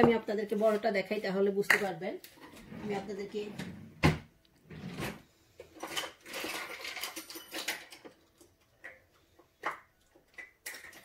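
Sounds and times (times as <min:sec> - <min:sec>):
kitchen utensils clicking and scraping: 0:05.1 - 0:11.0.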